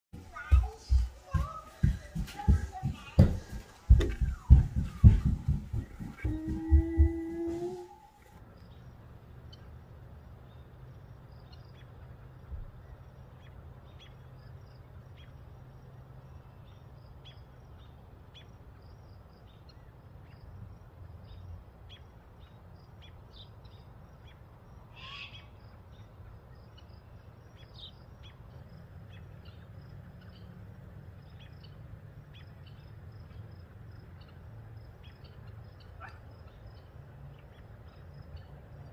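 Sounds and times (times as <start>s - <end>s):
steady low rumble: 0.2s - 11.1s
thin rising call: 4.0s - 8.4s.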